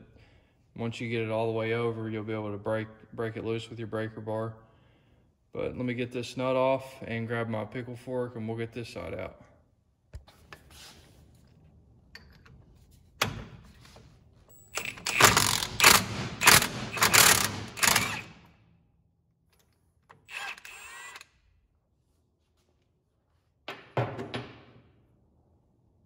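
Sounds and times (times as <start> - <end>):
impact wrench hammering: 14.7 - 18.4.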